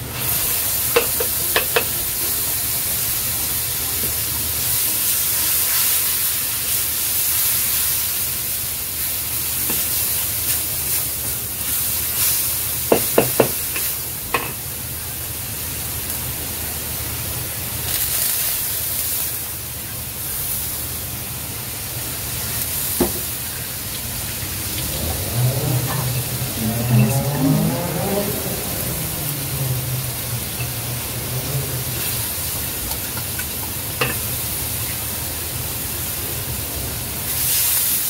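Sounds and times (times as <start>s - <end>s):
paste sizzling in a wok: 0.0s - 38.0s
spatula scraping wok: 0.2s - 2.2s, 24.5s - 34.4s
spatula knocking on wok: 1.0s - 1.9s, 12.9s - 13.6s.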